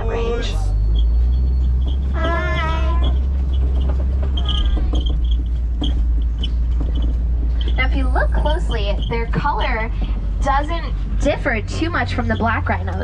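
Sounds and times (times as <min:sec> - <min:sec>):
truck engine rumbling: 0:00.0 - 0:13.0
high wavering cry: 0:02.1 - 0:03.3.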